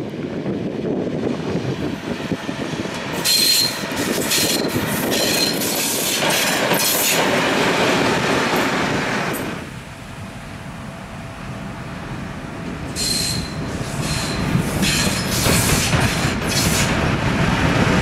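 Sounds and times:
diesel locomotive engine: 0.0 - 18.0
short high wheel squeals: 3.2 - 5.7, 13.0 - 15.6.

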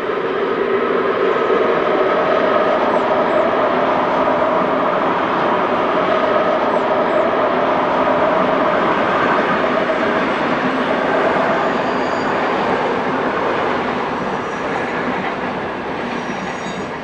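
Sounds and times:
electric train passing with whine: 0.0 - 17.0.

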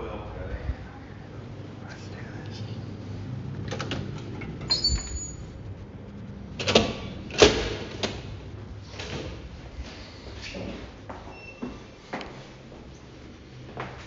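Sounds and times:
door squeak: 4.6 - 5.6, 11.3 - 11.9.

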